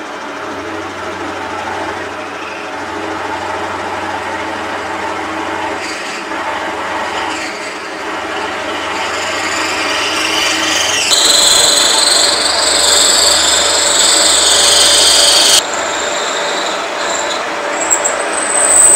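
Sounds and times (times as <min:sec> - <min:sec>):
milling machine hum: 0:00.0 - 0:18.9
grinding cutting noise: 0:05.8 - 0:18.9
high-pitched squeal: 0:07.2 - 0:18.9.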